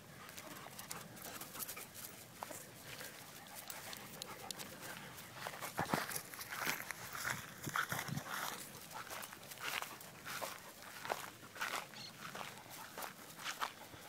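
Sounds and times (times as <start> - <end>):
dog panting: 0.2 - 6.4, 8.3 - 11.6, 12.4 - 14.0.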